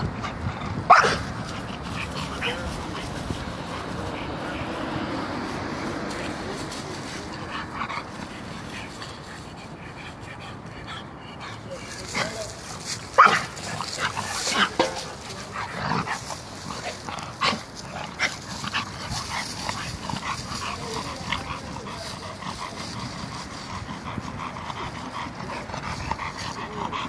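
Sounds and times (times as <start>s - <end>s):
dogs scuffling through dry leaves: 1.2s - 9.9s, 11.8s - 24.4s.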